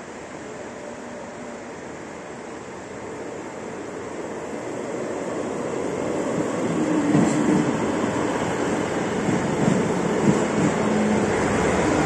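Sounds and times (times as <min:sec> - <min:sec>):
train wheels rumbling on rails: 0:03.8 - 0:12.0.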